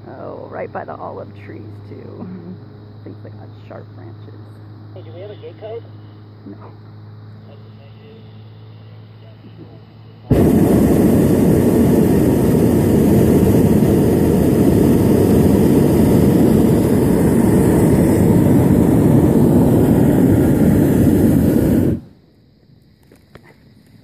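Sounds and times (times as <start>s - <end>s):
propane burner blast: 8.3s - 22.2s.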